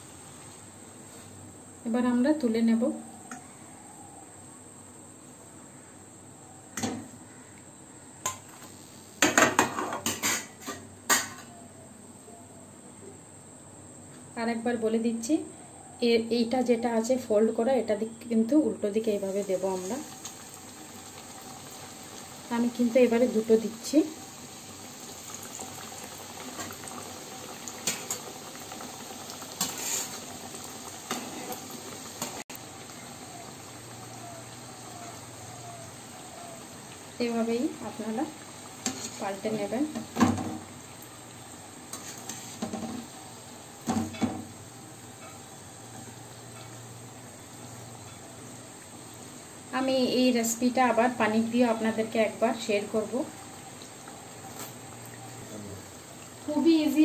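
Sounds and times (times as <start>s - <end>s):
metal utensils scraping a pan: 9.6s - 11.4s, 29.6s - 30.2s
dough deep-frying in oil: 16.1s - 57.0s.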